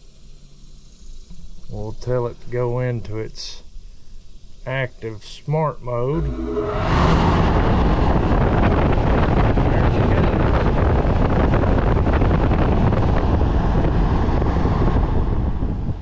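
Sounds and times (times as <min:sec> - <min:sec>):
fan air rushing on microphone: 0:05.9 - 0:16.0
low fan hum: 0:05.9 - 0:16.0.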